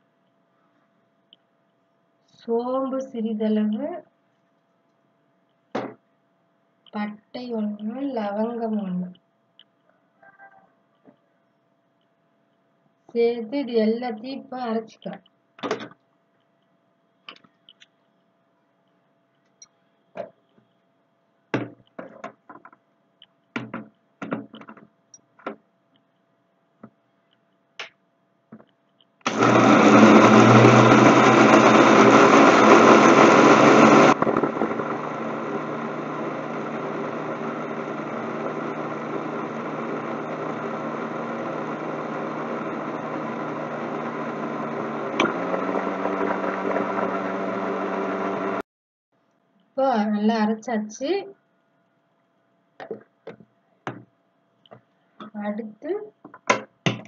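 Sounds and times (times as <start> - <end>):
mixer grinder motor: 29.3 - 48.6.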